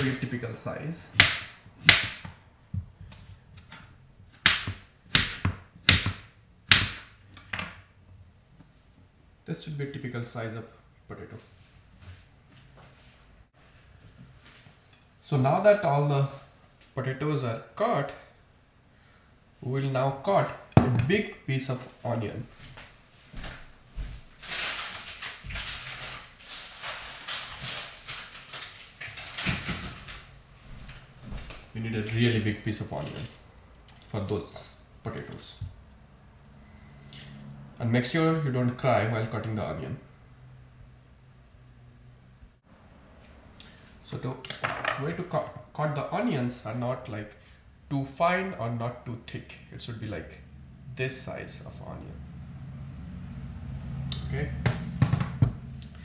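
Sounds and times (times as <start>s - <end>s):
knife chopping on cutting board: 1.1s - 2.3s, 4.4s - 7.1s
rustling and crackling handling: 22.6s - 36.0s.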